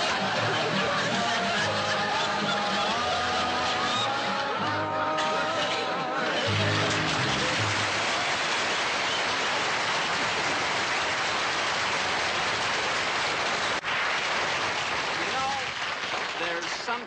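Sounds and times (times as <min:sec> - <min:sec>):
upright bass and acoustic guitar: 0:00.0 - 0:08.3
audience applauding: 0:00.0 - 0:17.0.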